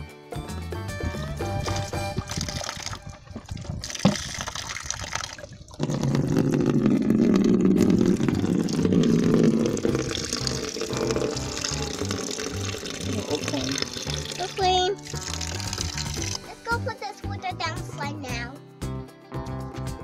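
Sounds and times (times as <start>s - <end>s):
tap water pouring into bucket: 1.6s - 16.5s.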